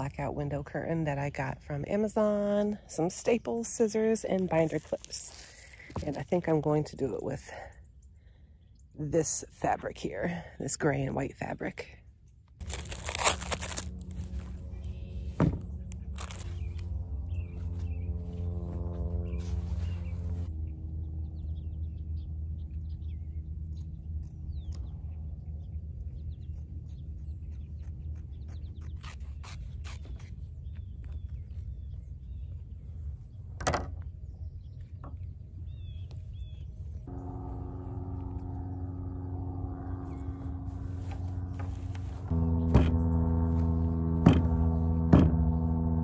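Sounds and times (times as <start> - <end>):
soft background music chords: 37.1 - 46.0.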